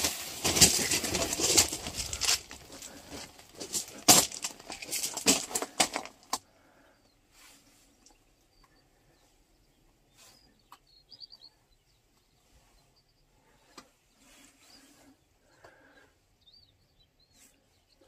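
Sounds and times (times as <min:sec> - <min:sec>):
rustling and scuffing: 0:00.0 - 0:06.2
small bird chirping: 0:07.9 - 0:18.0.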